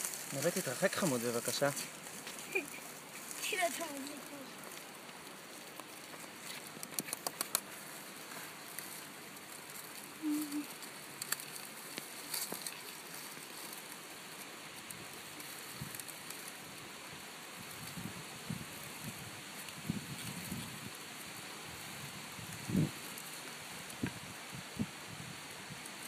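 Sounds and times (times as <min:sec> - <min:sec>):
dry leaves rustling and crackling: 0:00.0 - 0:26.0
sharp clicks: 0:06.7 - 0:07.7.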